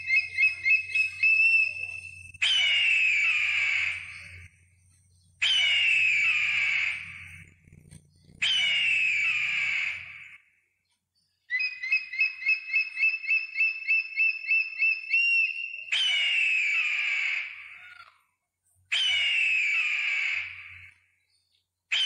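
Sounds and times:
eagle piping calls: 0.0 - 4.5, 5.3 - 10.4, 11.4 - 18.2, 18.9 - 21.0
eagle falling scream: 8.4 - 10.3.

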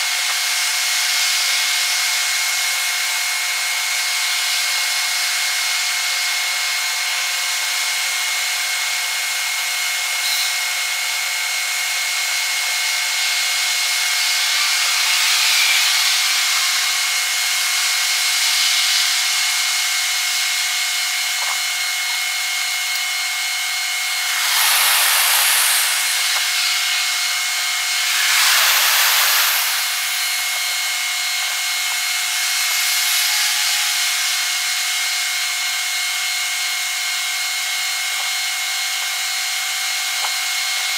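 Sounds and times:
steady high hiss: 24.0 - 34.2.

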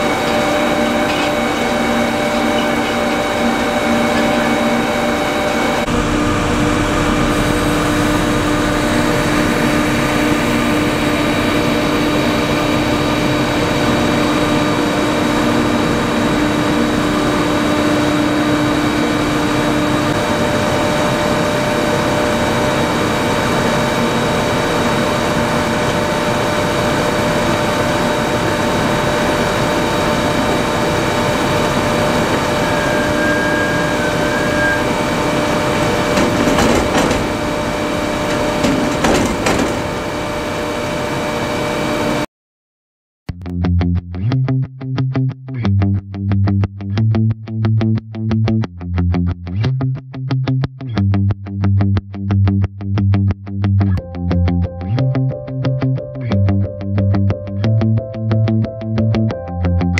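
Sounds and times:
machine drives humming: 0.0 - 42.2
diesel engine: 0.0 - 42.3.

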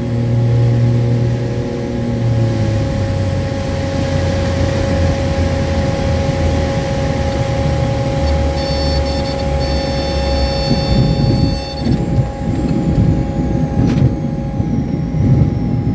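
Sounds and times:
plane engine and propeller drone: 0.0 - 15.9
high warning tone: 2.9 - 15.9.

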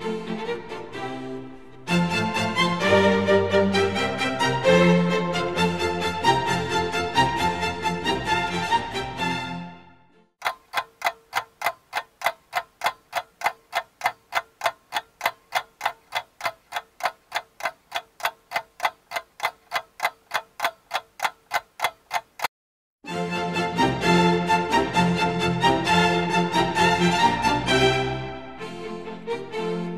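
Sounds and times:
background music: 0.0 - 10.2, 23.1 - 29.9
clock ticking: 10.4 - 22.5.

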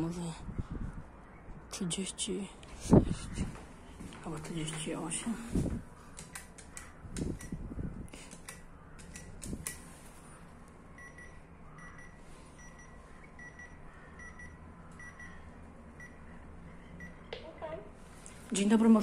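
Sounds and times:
intercom calling tone beeps: 11.0 - 15.4.

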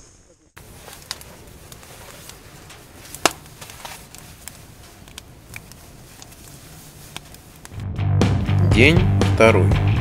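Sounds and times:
sharp clicks and crackles: 0.8 - 7.8.

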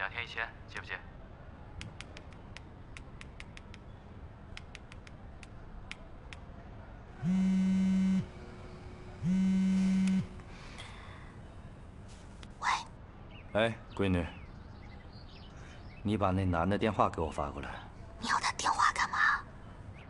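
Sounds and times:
phone buzzing: 7.2 - 8.5, 9.2 - 10.4.

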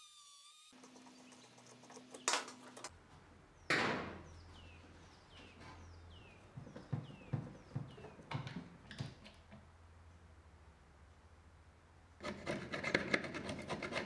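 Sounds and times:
high falling squeaks: 0.0 - 2.2.

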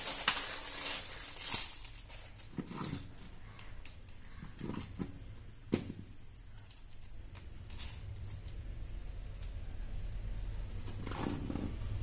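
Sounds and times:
plastic bag crinkling: 0.0 - 3.5.

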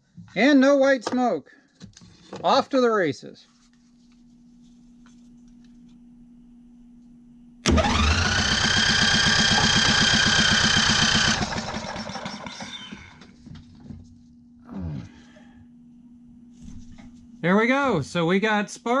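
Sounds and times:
electric starter cranking engine: 7.6 - 13.2
engine coasting to a stop: 7.7 - 12.9.

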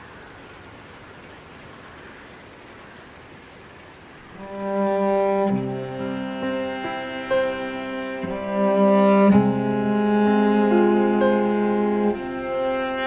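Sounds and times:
soft steady hiss: 0.0 - 13.0
bowed strings playing: 4.4 - 13.0
low cello-like line: 4.4 - 13.0.

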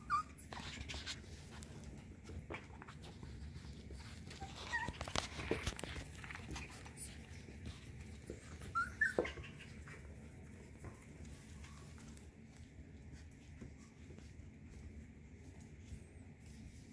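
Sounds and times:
puppies whimpering: 0.0 - 0.8, 6.2 - 12.2.

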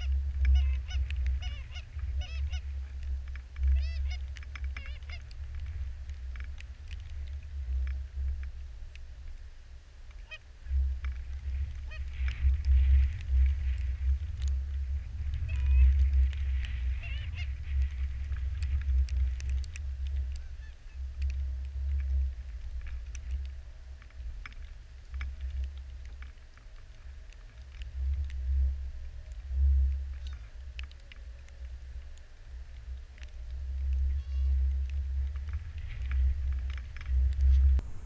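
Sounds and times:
geese honking: 0.0 - 2.6, 3.8 - 4.2, 10.2 - 10.4, 16.9 - 17.5
wind rumble on microphone: 0.0 - 38.0.

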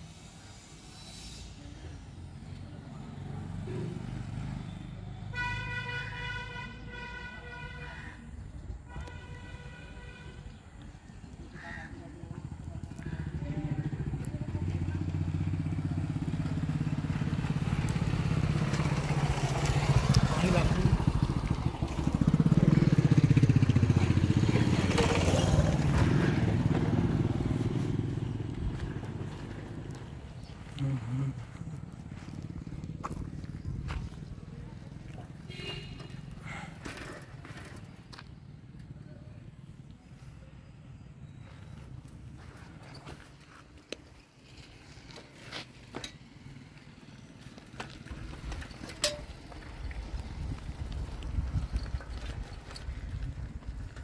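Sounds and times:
motorcycle engine running: 11.6 - 44.2, 45.9 - 54.0
footsteps on dry dirt and grass: 28.5 - 34.9.

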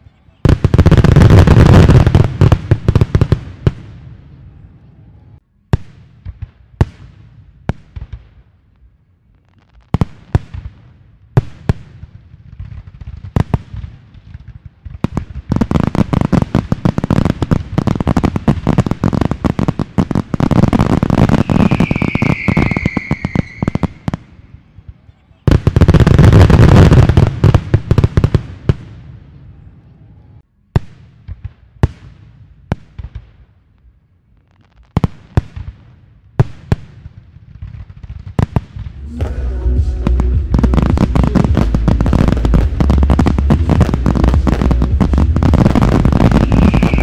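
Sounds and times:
fireworks bangs: 0.4 - 8.6, 9.4 - 29.8, 34.9 - 47.0
high falling tone: 39.0 - 47.0.

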